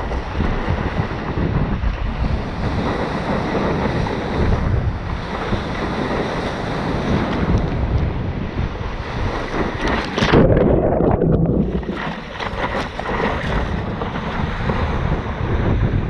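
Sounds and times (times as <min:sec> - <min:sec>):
surf rushing and splashing: 0:00.0 - 0:16.0
wind buffeting microphone: 0:00.0 - 0:16.0
paddling splashes: 0:09.0 - 0:15.4.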